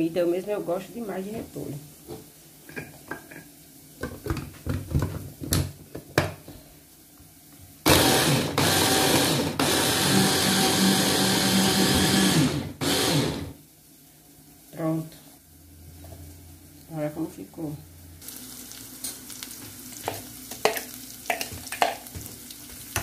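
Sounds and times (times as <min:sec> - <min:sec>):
hand blender motor chopping: 0:07.8 - 0:13.5.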